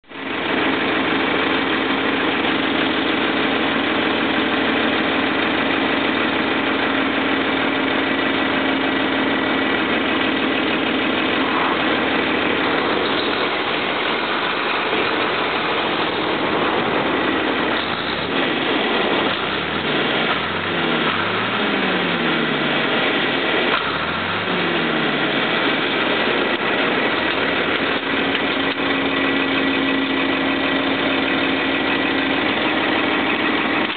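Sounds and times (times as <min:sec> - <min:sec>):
tractor diesel engine running: 0:00.0 - 0:33.9.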